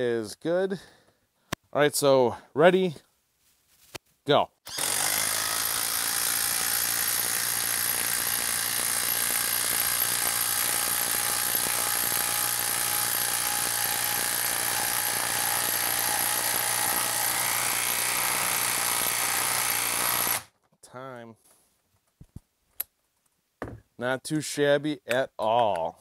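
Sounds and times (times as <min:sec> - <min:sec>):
impact driver hammering: 0:04.7 - 0:20.5.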